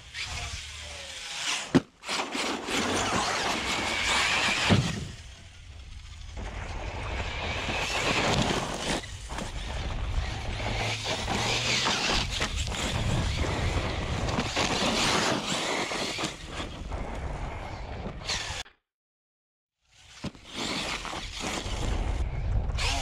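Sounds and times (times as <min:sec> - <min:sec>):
electric motor whining: 0:02.8 - 0:14.8.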